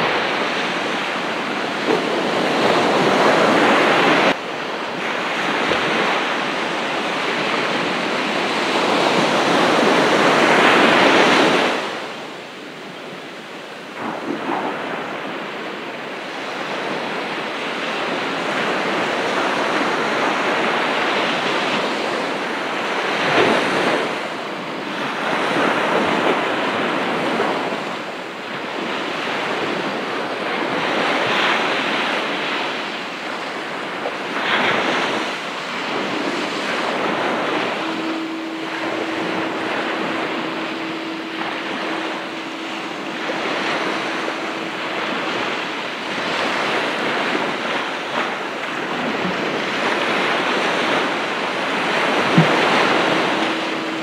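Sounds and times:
ocean surf breaking on beach: 0.0s - 54.0s
wind on microphone: 0.0s - 54.0s
steady low hum: 34.2s - 54.0s.

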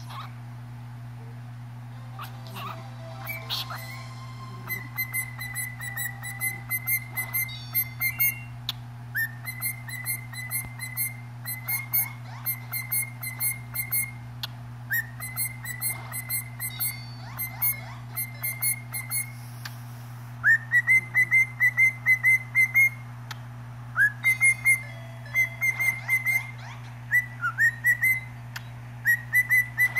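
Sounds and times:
parrot whistling rapid notes: 2.2s - 14.2s, 14.9s - 19.4s, 20.4s - 23.0s, 24.0s - 28.4s, 29.0s - 29.9s.

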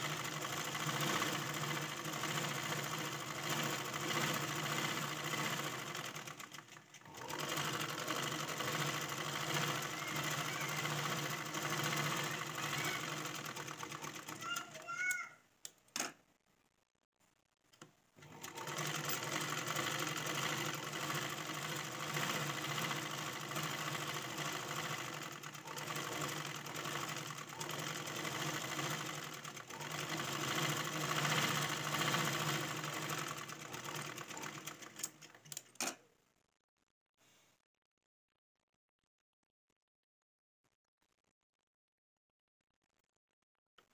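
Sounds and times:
sewing machine stitching: 0.0s - 15.2s, 18.2s - 36.0s
sewing machine clicks: 0.0s - 16.2s, 17.8s - 36.0s.

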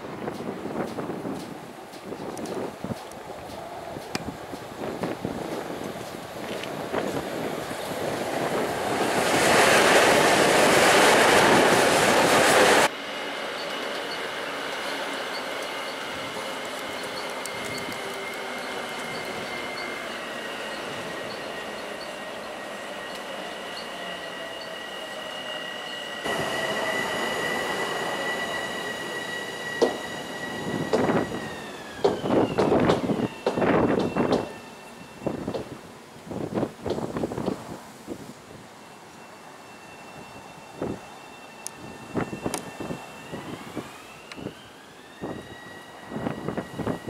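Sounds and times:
electric train passing: 0.0s - 47.0s
wheel or brake squeals: 13.6s - 35.6s, 38.8s - 47.0s.

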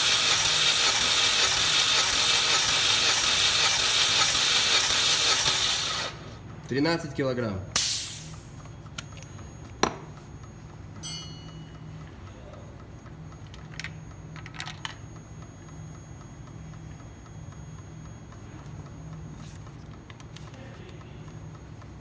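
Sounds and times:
steady low hum: 6.1s - 22.0s.

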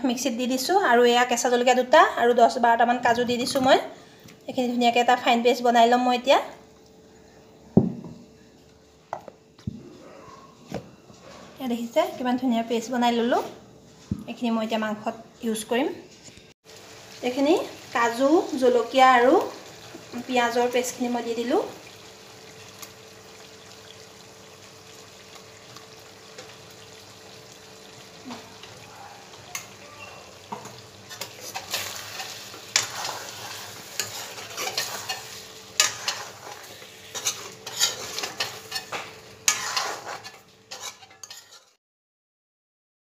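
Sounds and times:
food sizzling in a pan: 16.6s - 41.8s
steel spoon scraping a pan: 30.6s - 41.8s.

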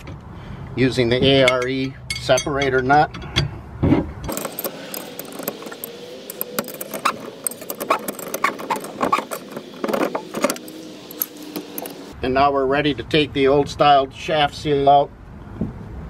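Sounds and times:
steel tools clinking: 1.4s - 3.4s, 4.2s - 12.1s.

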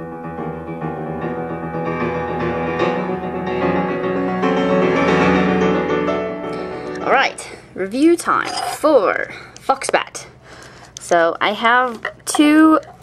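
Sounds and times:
sustained keyboard chords: 0.0s - 7.6s.

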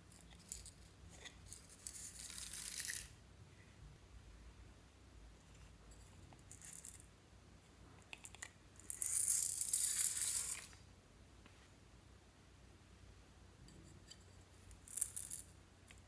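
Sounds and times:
beads pouring and rattling: 1.4s - 3.1s, 8.8s - 10.8s, 14.8s - 15.5s.

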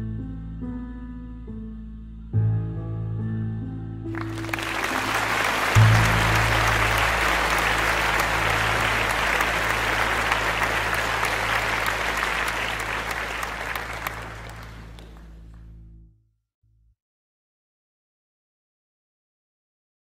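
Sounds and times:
audience applauding: 4.1s - 15.5s.

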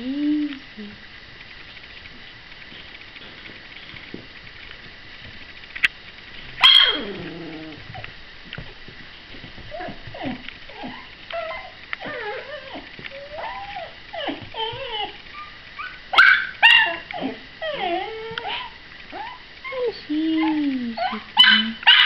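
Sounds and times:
puppy yapping: 6.6s - 7.8s, 9.7s - 22.0s
puppy whimpering and whining: 6.6s - 8.0s, 9.7s - 22.0s.

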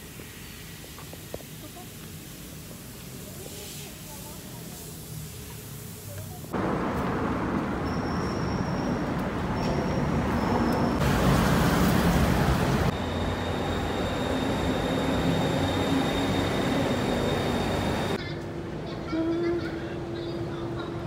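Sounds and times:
elevated train at station: 0.0s - 21.0s
road traffic: 4.5s - 18.8s
high whine: 12.8s - 18.2s.

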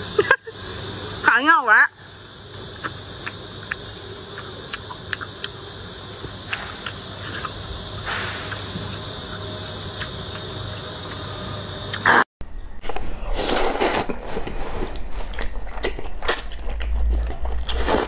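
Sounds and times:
steady high hiss: 0.0s - 12.2s
person slurping: 2.7s - 11.3s, 13.2s - 14.8s
wet chewing clicks: 2.7s - 11.3s, 15.0s - 18.0s.

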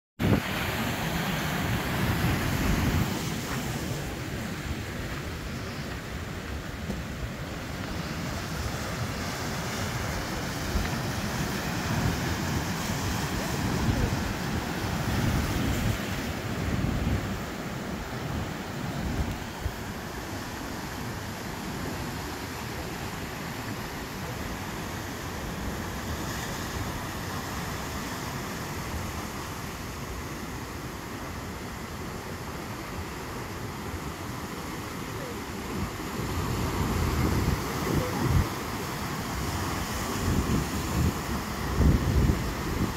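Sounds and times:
ocean surf breaking over rocks: 0.2s - 42.9s
wind buffeting microphone: 39.3s - 42.9s.

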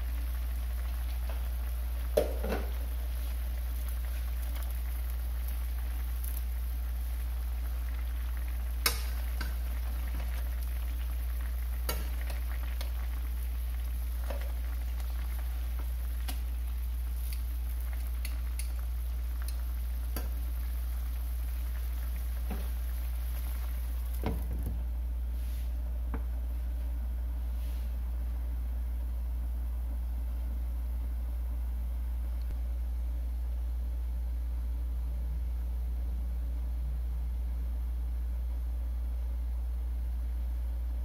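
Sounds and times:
sauce bubbling and sizzling: 0.0s - 24.8s
metal tongs clicking on pan: 8.8s - 9.6s.

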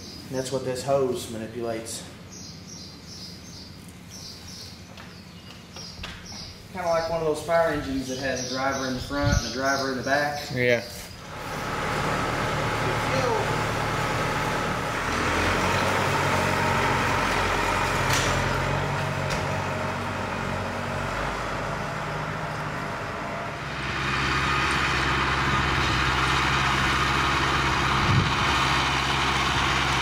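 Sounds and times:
tractor engine running: 11.2s - 30.0s
tractor working under load: 11.2s - 30.0s.

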